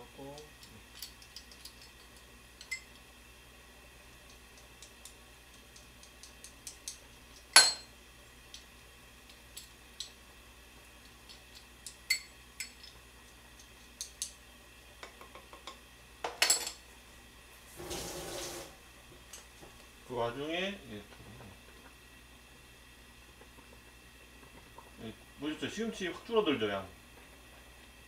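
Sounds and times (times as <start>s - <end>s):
utensils clinking on a plate: 7.6s - 7.9s, 16.3s - 16.8s
kitchen tap running: 17.7s - 19.4s.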